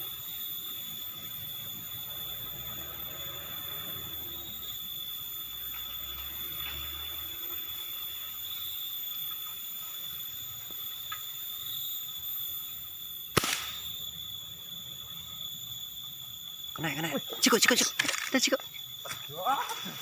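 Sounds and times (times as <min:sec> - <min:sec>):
high-pitched insect drone: 0:00.0 - 0:20.0
air rifle shot: 0:13.3 - 0:13.8.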